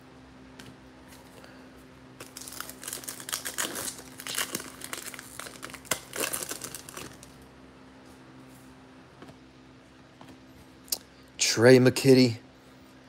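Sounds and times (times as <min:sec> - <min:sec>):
foil wrapper tearing and crinkling: 0:02.2 - 0:07.4.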